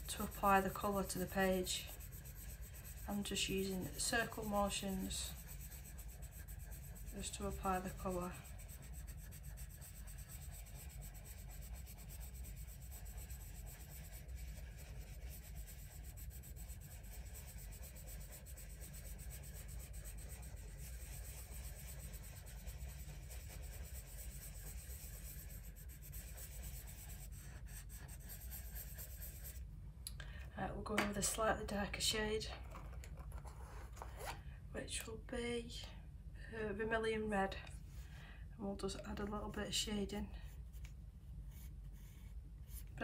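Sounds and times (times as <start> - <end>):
pencil scratching on paper: 0.0 - 29.6, 41.4 - 42.9.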